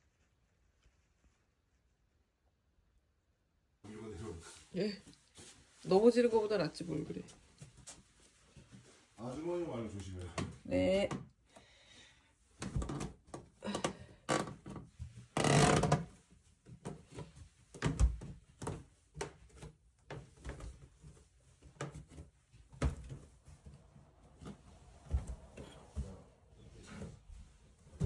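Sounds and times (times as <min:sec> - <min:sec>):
wooden stairs creaking: 0:12.6 - 0:16.1
footsteps on wooden stairs: 0:22.8 - 0:26.3.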